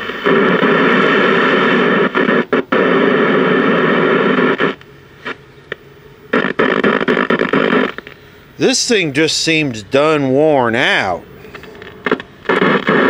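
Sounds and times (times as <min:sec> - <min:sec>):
loud hissing tv static: 0:00.0 - 0:13.0.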